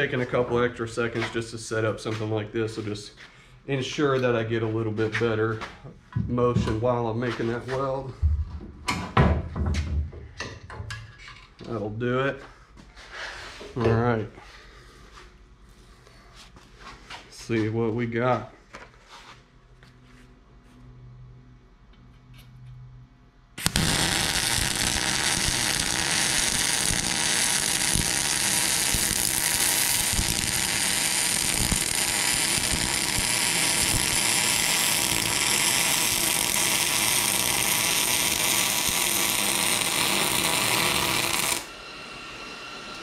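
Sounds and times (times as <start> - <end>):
welder arc crackling hiss: 23.6 - 41.8.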